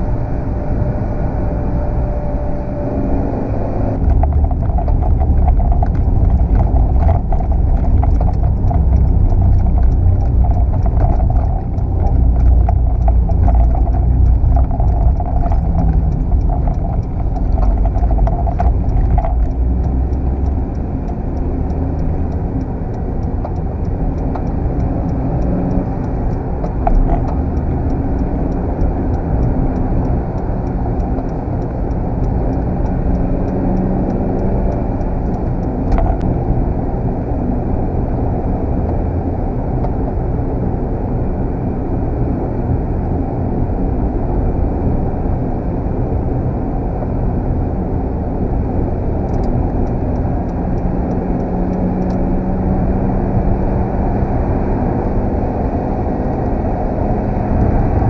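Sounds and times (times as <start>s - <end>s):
car engine and tyre rumble: 0.0s - 58.0s
faint clicks: 4.1s - 36.3s.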